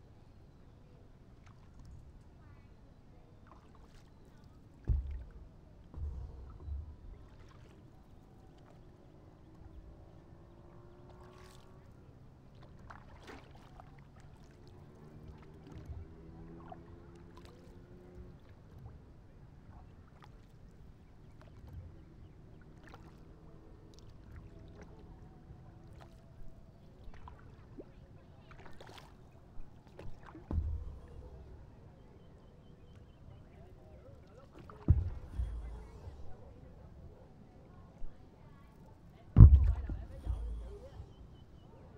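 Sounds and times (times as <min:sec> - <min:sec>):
paddle splashing in water: 0:03.4 - 0:19.1, 0:19.7 - 0:38.1, 0:38.8 - 0:41.9
water dripping: 0:39.4 - 0:40.8.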